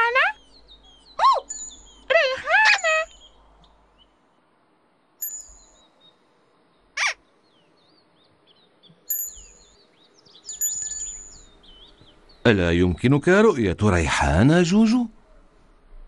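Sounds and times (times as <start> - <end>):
birds chirping and singing: 0.0 - 4.2, 5.2 - 13.2
high ringing tones: 1.4 - 2.1, 5.2 - 5.8, 9.1 - 9.8, 10.4 - 11.6.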